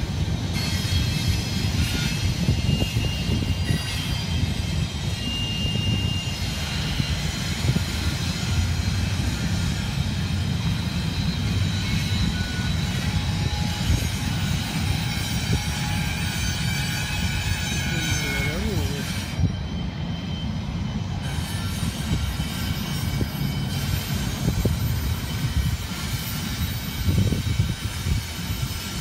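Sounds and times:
freight train rumbling past: 0.0s - 29.0s
high wheel squeals: 0.0s - 29.0s.

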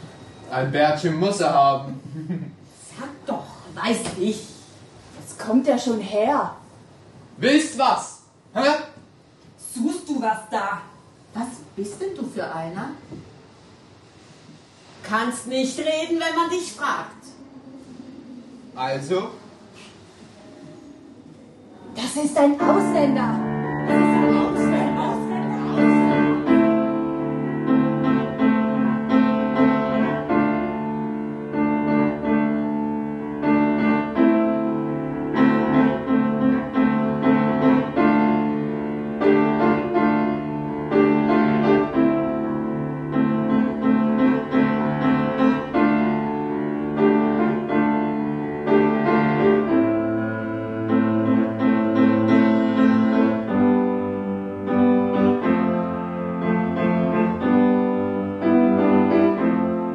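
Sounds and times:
piano music: 22.4s - 59.9s.

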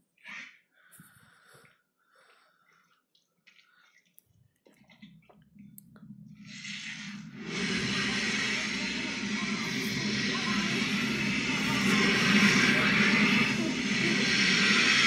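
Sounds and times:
breaths: 0.7s - 4.2s
faint drips: 0.8s - 6.4s
low rumble into rushing surge: 6.4s - 15.0s.

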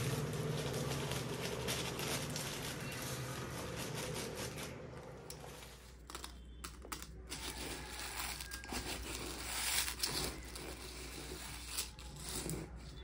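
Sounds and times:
dry rice rustling: 0.0s - 6.0s.

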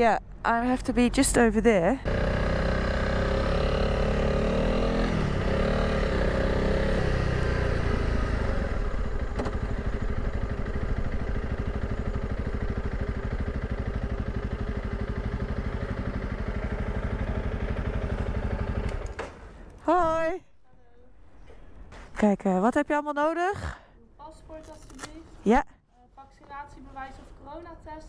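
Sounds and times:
motorcycle engine at low speed: 2.0s - 20.1s.

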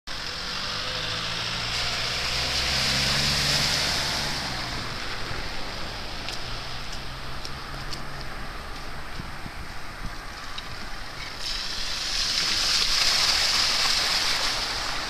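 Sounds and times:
low engine hum: 0.1s - 11.3s
hiss of spray from tyres: 11.3s - 15.0s.

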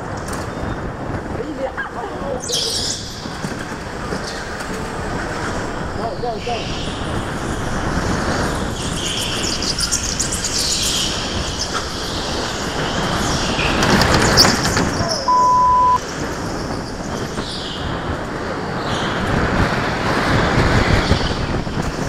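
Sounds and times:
go-kart engine and tyre noise: 0.0s - 22.0s
loud flat beep: 15.3s - 16.0s.

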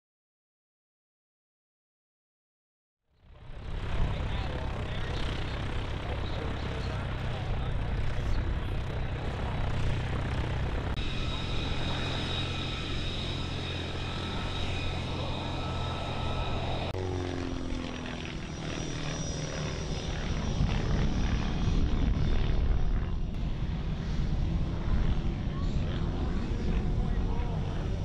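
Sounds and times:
plane engine drone in flight: 3.2s - 28.0s
biplane engine idling: 3.3s - 28.0s
high whine: 6.1s - 25.1s.

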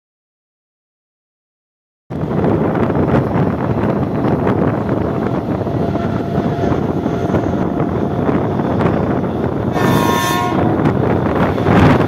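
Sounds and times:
train wheels rumbling on rails: 2.1s - 12.0s
wind buffeting microphone: 2.1s - 12.0s
train horn: 5.8s - 7.9s, 9.6s - 12.0s.

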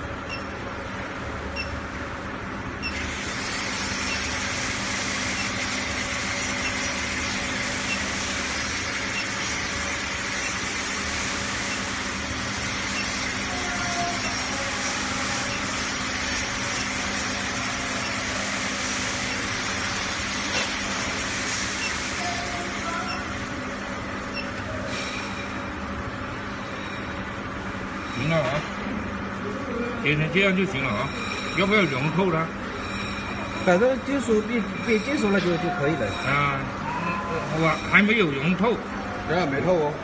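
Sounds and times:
furnace hissing: 2.4s - 31.0s.

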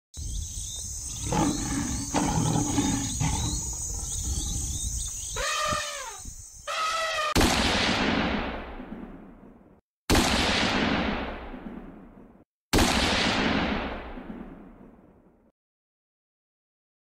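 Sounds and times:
lion roaring: 1.1s - 4.6s
elephant trumpeting: 5.4s - 7.4s
loud gunshot: 7.4s - 9.5s, 10.1s - 12.1s, 12.7s - 14.9s.

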